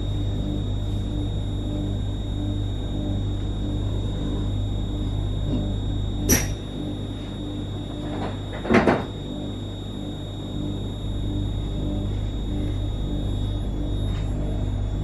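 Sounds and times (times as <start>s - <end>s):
train electrical hum: 0.0s - 15.0s
sharp click: 6.3s - 6.6s.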